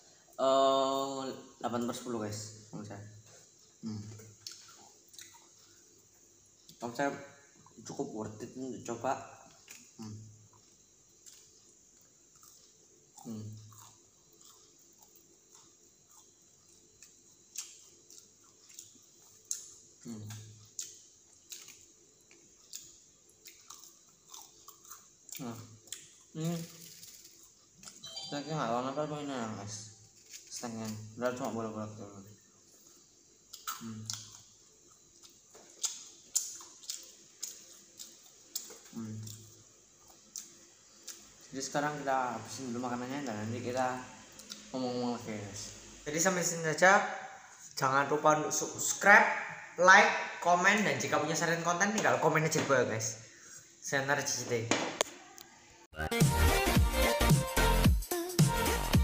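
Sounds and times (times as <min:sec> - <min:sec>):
low mouth hum: 0:03.2 - 0:05.0, 0:09.9 - 0:10.4, 0:13.1 - 0:14.0, 0:20.0 - 0:20.7, 0:25.4 - 0:27.0
person chewing food: 0:03.5 - 0:05.9, 0:09.6 - 0:28.0, 0:32.6 - 0:41.4
crunchy clicks of fried chicken: 0:35.2 - 0:39.5.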